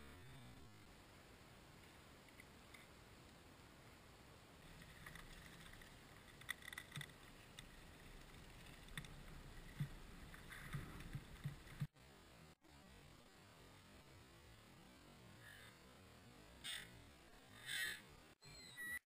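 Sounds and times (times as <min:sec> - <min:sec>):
faint outdoor noise: 0:00.0 - 0:19.0
gull calls: 0:16.6 - 0:16.9, 0:17.6 - 0:18.0.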